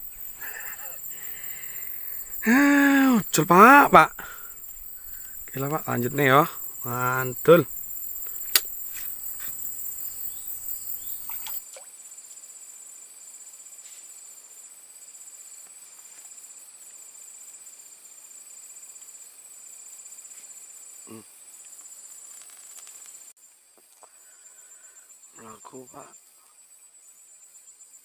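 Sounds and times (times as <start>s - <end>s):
crickets trilling: 0.0s - 28.0s
rustling noise: 21.7s - 23.3s.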